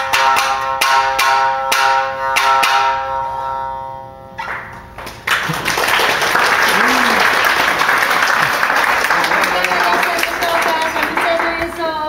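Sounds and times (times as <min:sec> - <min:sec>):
shamisen played with struck notes: 0:00.0 - 0:04.5
audience applause: 0:05.2 - 0:11.9.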